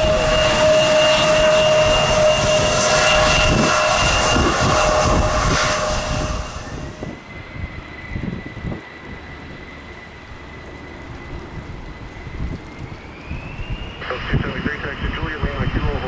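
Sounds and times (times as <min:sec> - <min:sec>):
engine whines: 0:00.0 - 0:16.0
jet engines passing: 0:00.0 - 0:16.0.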